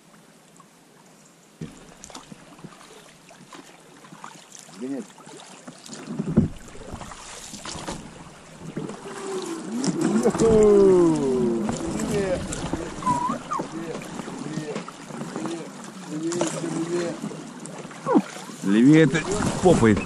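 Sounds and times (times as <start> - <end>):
boat knocks and scrapes: 1.6 - 2.8, 5.7 - 18.0, 18.8 - 20.0
water splashing against boat hull: 1.6 - 20.0.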